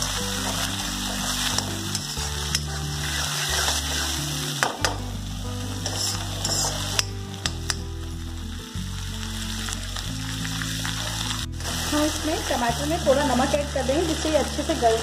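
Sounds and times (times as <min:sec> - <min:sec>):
onions and tomatoes sizzling in oil: 0:00.0 - 0:15.0
steel ladle scraping pan: 0:05.8 - 0:07.2.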